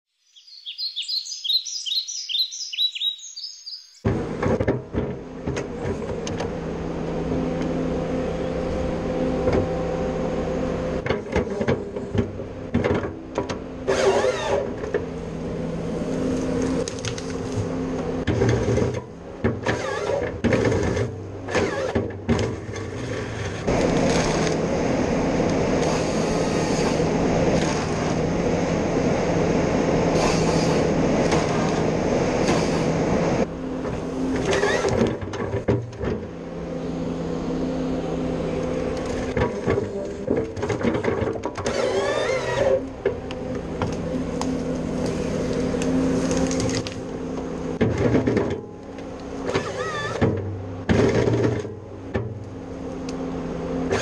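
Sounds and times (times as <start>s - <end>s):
hydraulic machinery clanks and knocks: 4.0s - 6.5s, 11.0s - 13.6s, 33.8s - 36.3s, 47.8s - 48.8s, 49.4s - 52.4s
diesel engine running: 4.1s - 54.0s.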